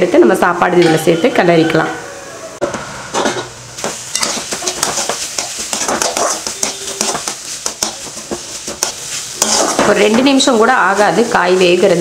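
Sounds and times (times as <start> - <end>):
metal spatula scraping a pan: 4.1 - 12.0.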